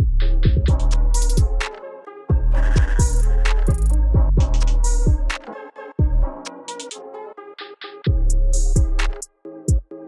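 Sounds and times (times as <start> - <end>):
hi-hat ticks: 0.2 - 1.8, 2.6 - 5.4, 7.8 - 9.8.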